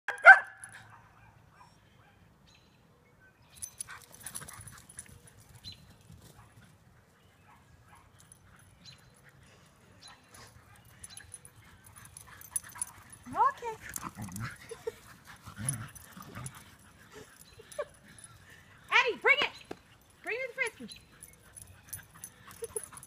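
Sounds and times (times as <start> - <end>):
dog barking: 0.1 - 2.2.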